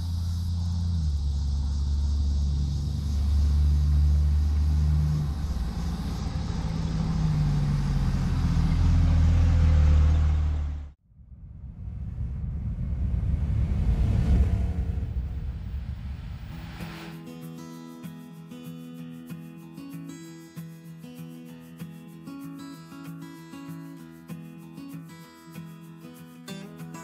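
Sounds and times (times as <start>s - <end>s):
different engine rumble: 0.0s - 17.1s
truck engine rumbling: 0.0s - 17.1s.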